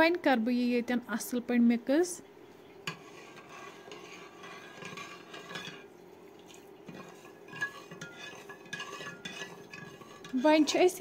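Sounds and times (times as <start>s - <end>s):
faint steady hum: 0.0s - 11.0s
metal ladle stirring in metal pot: 2.8s - 6.0s, 6.8s - 11.0s.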